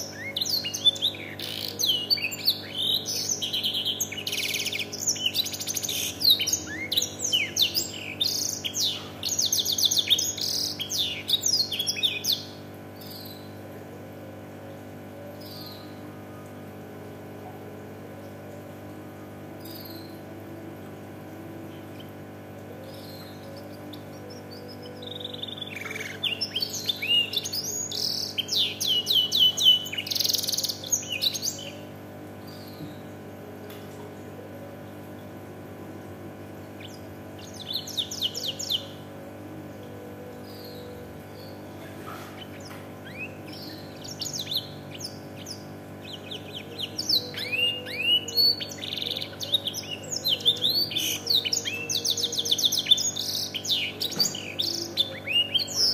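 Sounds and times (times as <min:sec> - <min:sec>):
canary trilling and chirping: 0:00.0 - 0:13.6, 0:22.8 - 0:31.8, 0:36.8 - 0:55.9
steady low hum: 0:00.0 - 0:55.9.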